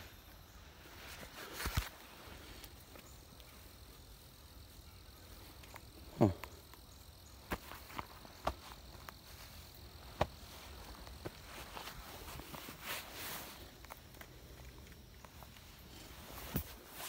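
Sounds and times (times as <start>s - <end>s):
footsteps in grass and dry leaves: 0.0s - 3.2s, 7.1s - 17.0s
faint insect hum: 0.0s - 17.0s.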